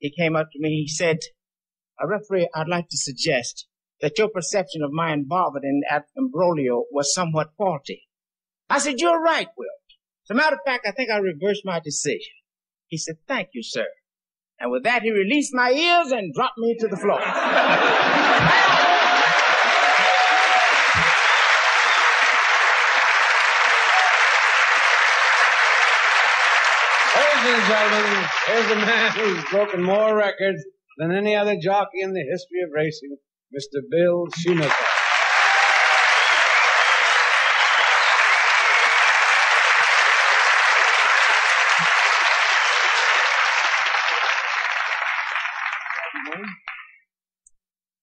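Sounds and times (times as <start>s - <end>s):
audience applauding: 17.3s - 30.0s, 34.3s - 47.0s.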